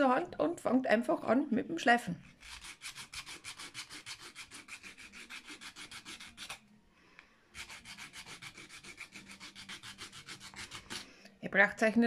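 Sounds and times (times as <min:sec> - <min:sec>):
sandpaper rubbing wooden bead: 0:02.4 - 0:06.6, 0:07.5 - 0:11.0.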